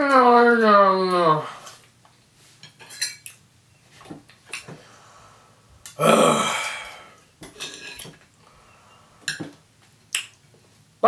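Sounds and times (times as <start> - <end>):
loud burp: 6.0 - 7.0.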